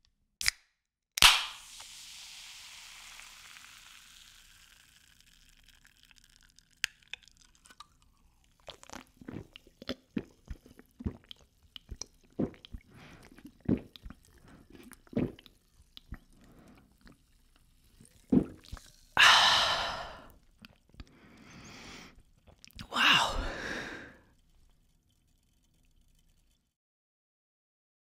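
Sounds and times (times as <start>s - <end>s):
person swallowing a drink: 8.6s - 17.2s, 18.0s - 24.3s
wet mouth clicks: 8.7s - 17.2s, 22.4s - 24.1s.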